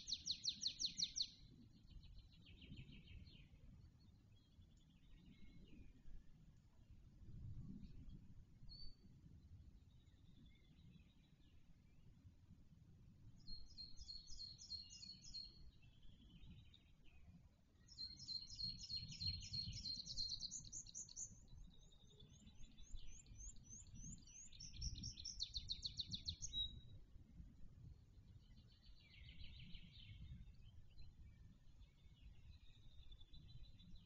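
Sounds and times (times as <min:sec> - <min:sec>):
small songbirds singing: 0:00.0 - 0:06.2, 0:13.3 - 0:27.0, 0:28.1 - 0:34.0.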